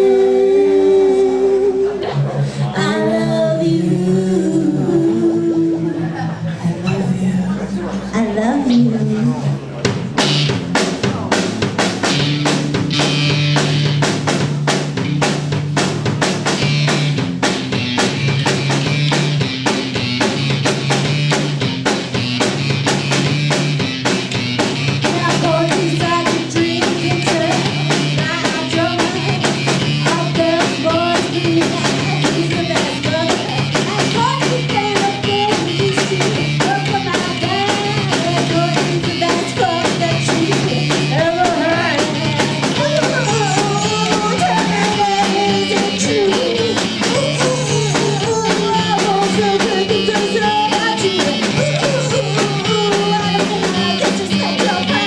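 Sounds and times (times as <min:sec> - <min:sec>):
woman singing lead vocal: 0:00.0 - 0:09.6, 0:25.0 - 0:55.0
bass guitar: 0:00.0 - 0:55.0
drum-kit beat: 0:09.8 - 0:55.0
electric guitar: 0:09.8 - 0:55.0.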